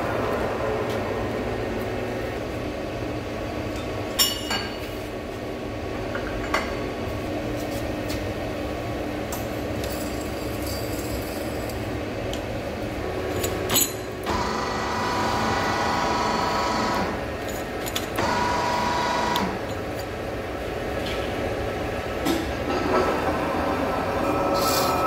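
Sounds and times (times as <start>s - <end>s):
lathe machine hum: 14.2s - 17.4s, 18.2s - 19.7s
high ringing whine: 24.0s - 25.0s.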